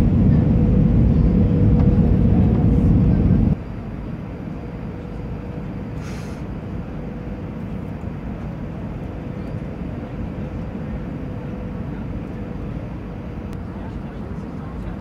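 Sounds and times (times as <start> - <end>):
airliner engine and airflow rumble: 0.0 - 15.0
brief hiss: 6.0 - 6.4.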